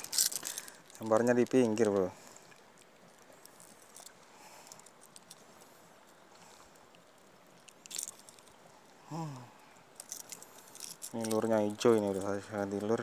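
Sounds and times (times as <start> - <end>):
fish handling rustles and clicks: 0.0 - 9.0, 9.7 - 13.0
sharp crackle: 0.0 - 9.4
person grunting: 9.1 - 9.6.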